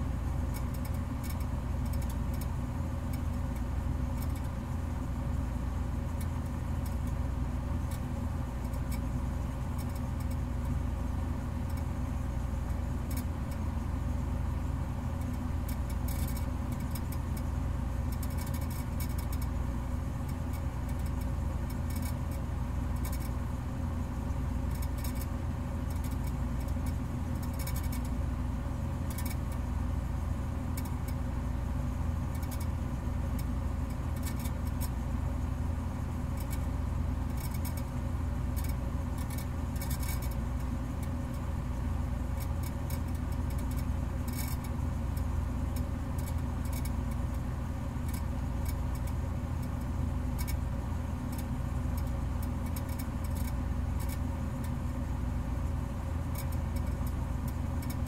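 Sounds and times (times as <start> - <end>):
low mechanical hum: 0.0 - 58.0
faint high ticks: 0.5 - 4.7, 5.5 - 12.0, 12.6 - 14.1, 15.1 - 17.5, 18.1 - 23.4, 24.3 - 28.2, 29.0 - 29.6, 30.6 - 31.3, 32.3 - 35.0, 36.2 - 55.0, 55.8 - 58.0.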